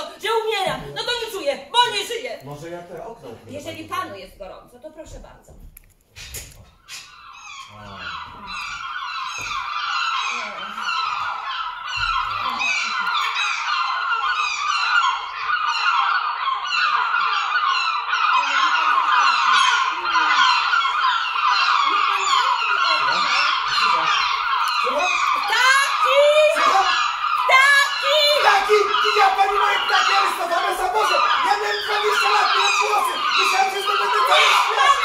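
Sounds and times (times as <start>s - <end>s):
seagulls crying: 6.8s - 35.0s.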